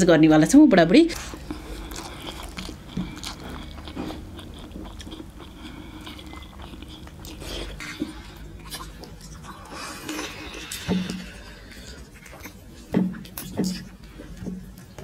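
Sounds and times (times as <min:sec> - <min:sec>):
people chewing and biting food: 0:01.1 - 0:15.0.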